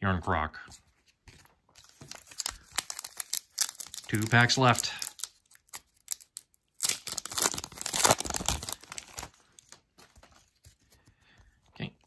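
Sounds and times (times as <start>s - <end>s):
foil wrapper tearing and crinkling: 1.8s - 9.8s.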